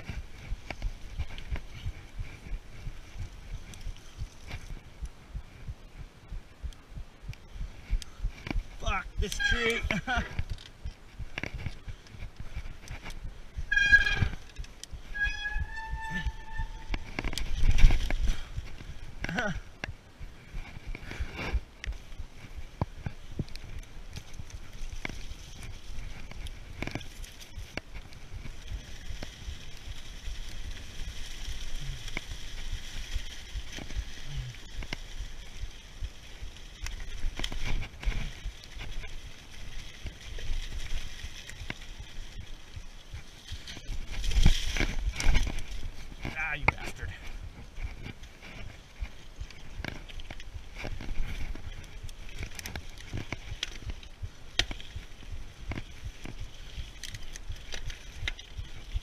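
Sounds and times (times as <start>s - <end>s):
bike knocking and rattling: 0.0s - 59.0s
wind on microphone: 0.0s - 59.0s
tyres rolling over leaves: 22.3s - 59.0s.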